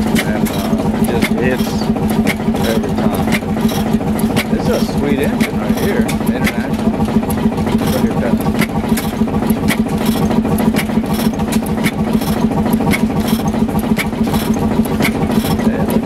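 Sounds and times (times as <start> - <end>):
blower hum: 0.0 - 16.0
stationary engine cracking beat: 0.0 - 16.0.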